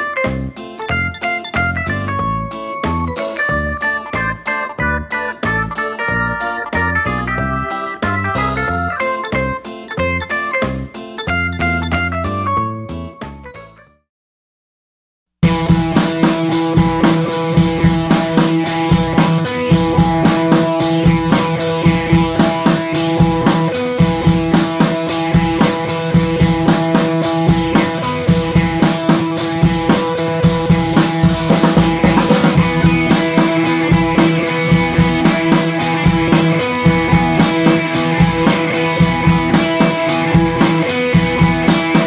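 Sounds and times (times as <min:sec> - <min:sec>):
drum-kit beat: 0:15.4 - 0:42.0
sustained instrumental tones: 0:15.4 - 0:42.0.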